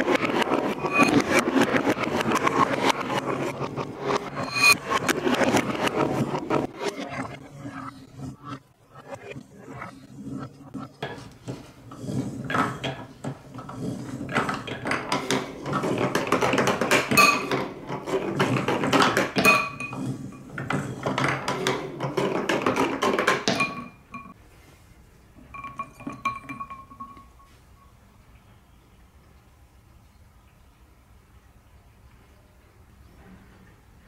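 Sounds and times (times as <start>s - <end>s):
balls clinking against glass: 4.1s - 5.3s, 14.4s - 17.8s, 18.4s - 24.4s, 25.4s - 28.0s
ringing tones from glass bowl: 17.1s - 17.6s, 19.4s - 20.0s, 23.5s - 24.4s, 25.4s - 28.0s.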